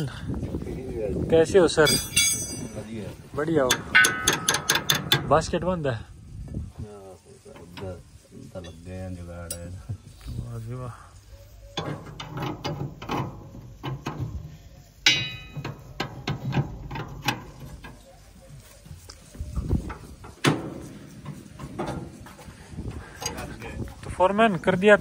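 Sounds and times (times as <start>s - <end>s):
spanner clicking on steel parts: 1.8s - 2.8s, 3.6s - 5.4s, 11.8s - 18.0s
ringing metal clank: 1.8s - 5.4s, 15.0s - 17.7s.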